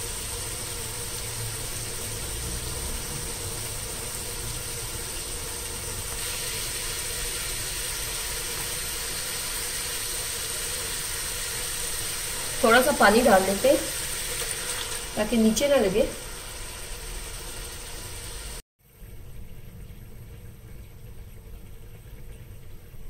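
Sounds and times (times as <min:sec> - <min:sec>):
food sizzling in a pot: 0:00.0 - 0:19.4
low steady hum: 0:18.9 - 0:23.0.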